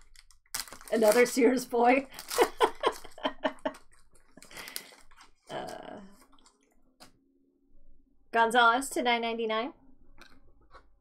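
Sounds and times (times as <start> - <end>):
foil wrapper crinkling: 0.0 - 6.6.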